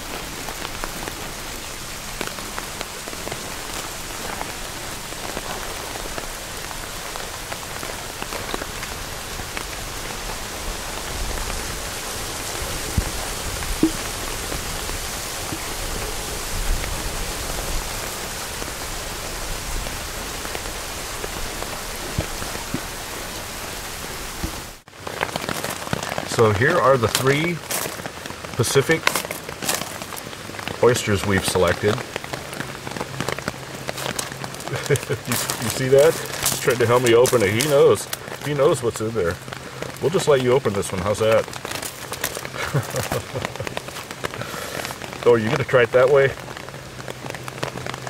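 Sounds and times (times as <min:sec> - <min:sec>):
rain on a tarp: 0:00.0 - 0:48.0
sharp taps: 0:13.8 - 0:14.1.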